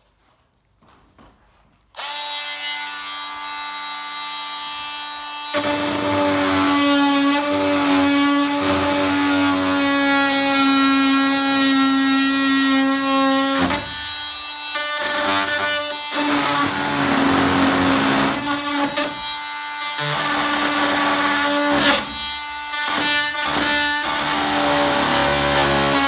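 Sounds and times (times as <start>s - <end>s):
blade cutting plastic sheet: 5.4s - 26.0s.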